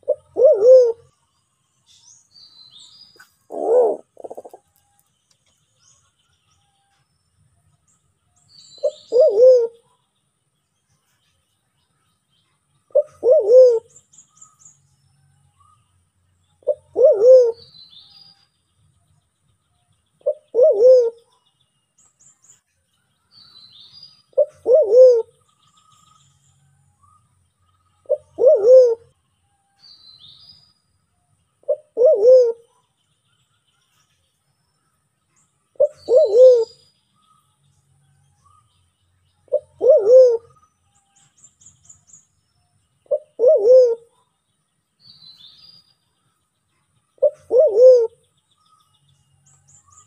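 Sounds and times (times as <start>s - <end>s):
dove cooing: 0.0s - 1.1s, 3.4s - 4.6s, 8.8s - 9.9s, 12.9s - 14.0s, 16.6s - 17.7s, 20.2s - 21.3s, 24.4s - 25.3s, 28.0s - 29.1s, 31.6s - 32.7s, 35.8s - 36.8s, 39.5s - 40.6s, 43.0s - 44.2s, 47.2s - 48.2s
small birds chirping: 0.0s - 50.0s.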